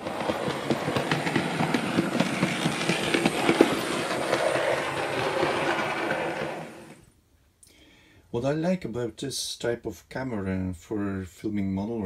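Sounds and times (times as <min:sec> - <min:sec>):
model train wheels rattling on rails: 0:00.0 - 0:07.0.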